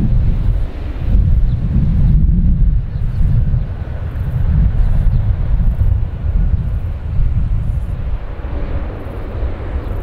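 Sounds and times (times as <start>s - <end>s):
turboprop engines rumbling: 0.0s - 10.0s.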